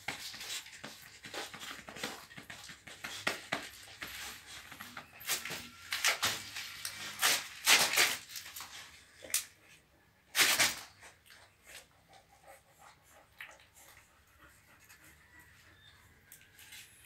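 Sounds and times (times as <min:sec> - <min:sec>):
dogs breathy noises: 0:11.0 - 0:16.6.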